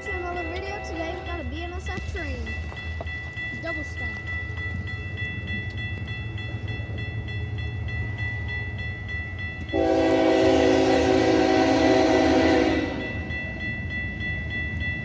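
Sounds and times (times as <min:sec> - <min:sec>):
level crossing bell ringing: 0:00.0 - 0:10.3
locomotive air horn blast: 0:09.7 - 0:13.1.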